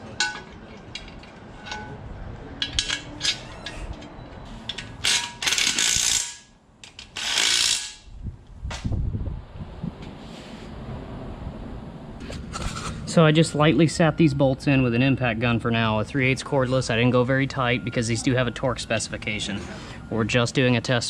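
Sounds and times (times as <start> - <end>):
metal clicks of bolts and tool: 0.2 - 2.0, 2.6 - 8.0.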